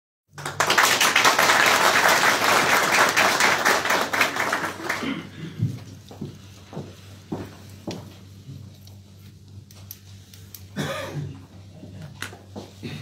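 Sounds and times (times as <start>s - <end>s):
audience applauding: 0.3s - 5.4s.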